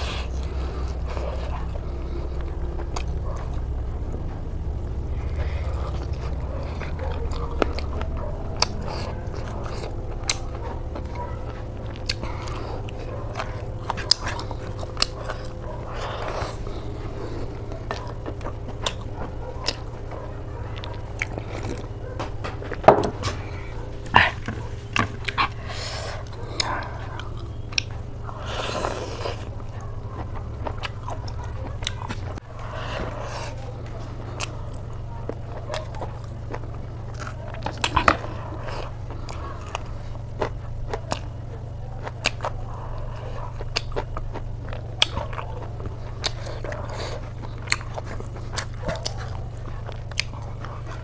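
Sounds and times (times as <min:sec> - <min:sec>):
chewing and biting: 0:00.0 - 0:51.0
steady low hum: 0:00.0 - 0:51.0.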